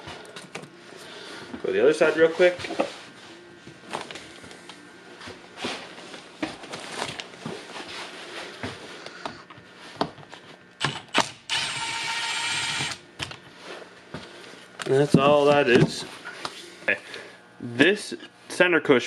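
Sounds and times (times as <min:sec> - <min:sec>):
cordless power driver running: 0:10.8 - 0:13.4.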